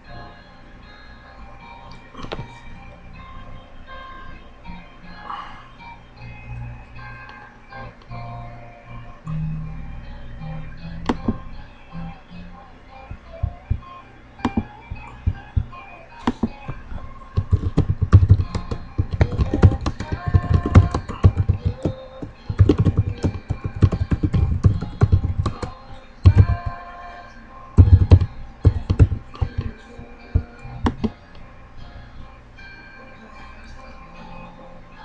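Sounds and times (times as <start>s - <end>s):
computer keyboard typing: 14.4s - 26.8s, 27.8s - 31.2s.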